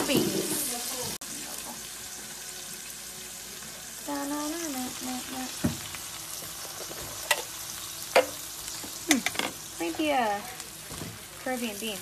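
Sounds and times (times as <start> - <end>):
rice sizzling in a frying pan: 0.0 - 12.0
person humming: 4.1 - 5.7.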